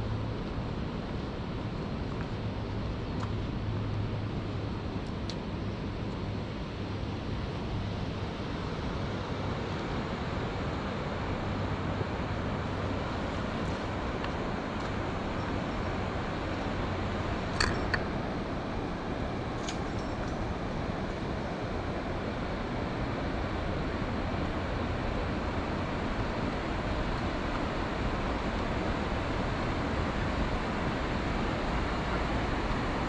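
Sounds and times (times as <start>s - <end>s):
river water rushing: 6.8s - 33.0s.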